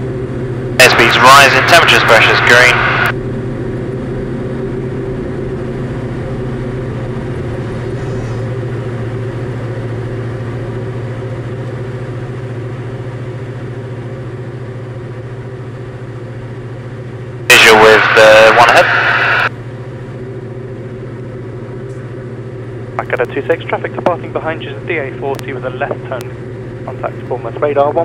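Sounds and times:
propeller aircraft engine droning: 0:00.0 - 0:28.0.

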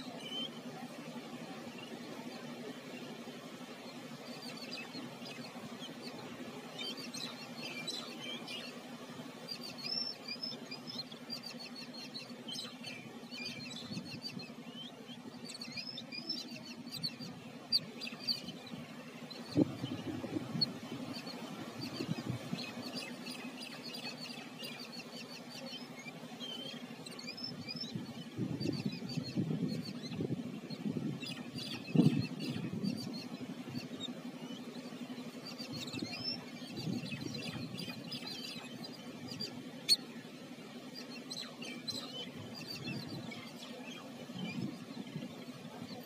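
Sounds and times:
steady low hum: 0:00.0 - 0:46.0
birds chattering squeaky calls: 0:09.4 - 0:46.0.

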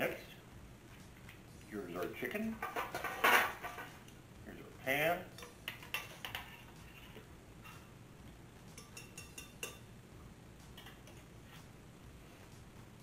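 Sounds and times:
metallic ring: 0:08.8 - 0:09.9
utensil clinking on saucepan: 0:08.8 - 0:09.9.

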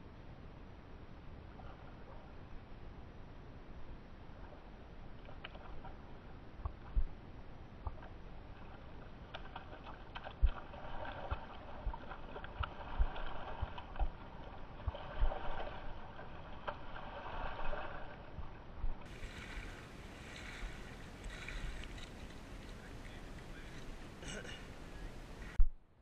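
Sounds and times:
fish splashing at water surface: 0:08.7 - 0:18.4, 0:19.0 - 0:22.7.

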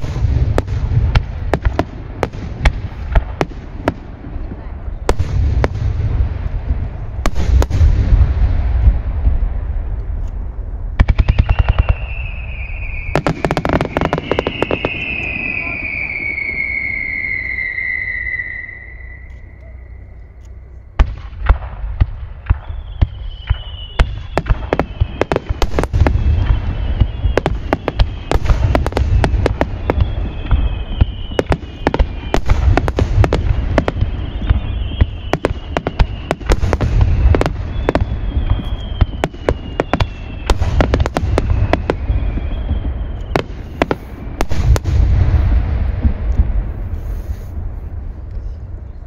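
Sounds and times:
low rumble: 0:00.0 - 0:11.0
fireworks bangs and cracks: 0:00.0 - 0:18.6, 0:21.0 - 0:47.9
whistling fireworks shells: 0:11.0 - 0:20.7, 0:22.4 - 0:45.6.

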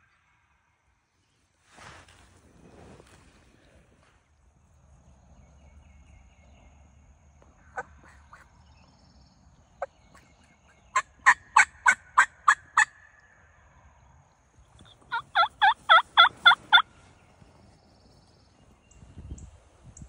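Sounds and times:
wild turkey calling: 0:07.6 - 0:09.0, 0:09.8 - 0:13.7, 0:14.7 - 0:18.8.

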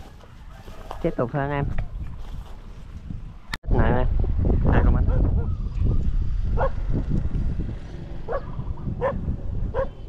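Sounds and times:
steady low rumble: 0:01.7 - 0:10.0
dog barking: 0:06.6 - 0:06.8, 0:08.3 - 0:10.0.

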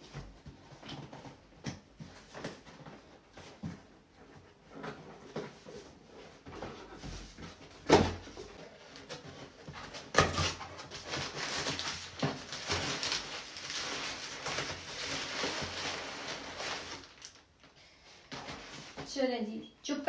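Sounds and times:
packing paper rustling: 0:06.4 - 0:19.1.

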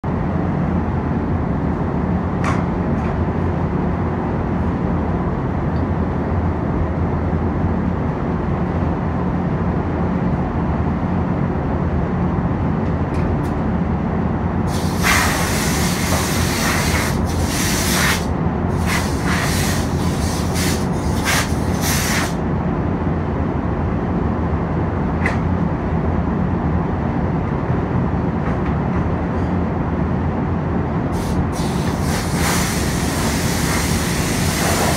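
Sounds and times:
ventilation fans rumbling: 0:00.0 - 0:34.9
compressed air hisses: 0:14.7 - 0:22.4, 0:31.1 - 0:34.9.

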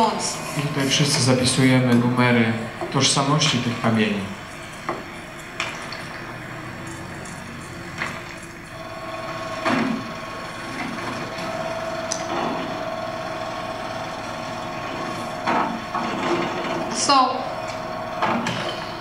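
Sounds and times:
machine hum: 0:00.0 - 0:19.0.

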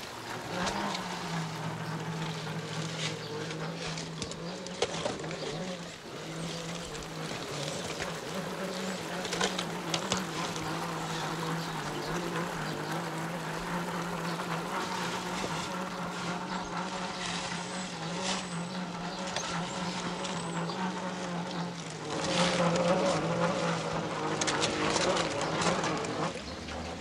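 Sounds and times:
rough crunching with clicks: 0:00.0 - 0:17.3.

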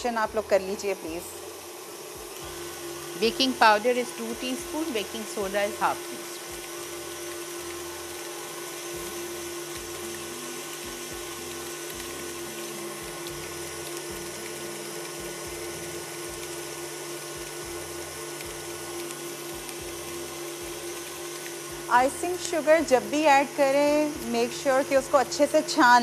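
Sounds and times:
music with steady low beat: 0:06.4 - 0:22.3.

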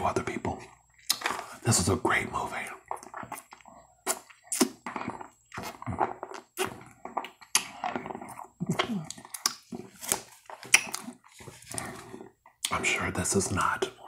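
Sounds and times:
wet mouth smacks and slurps: 0:02.9 - 0:12.1.

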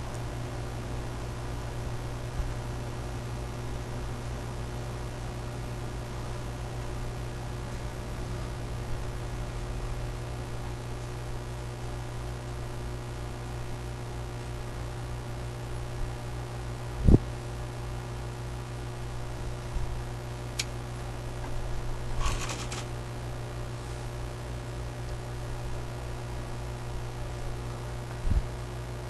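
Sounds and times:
rattling clicks: 0:22.2 - 0:22.9.

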